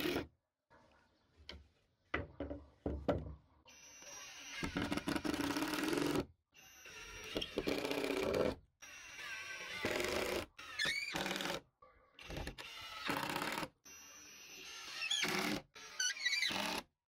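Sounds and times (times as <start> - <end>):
impact driver driving screws: 12.2 - 16.9.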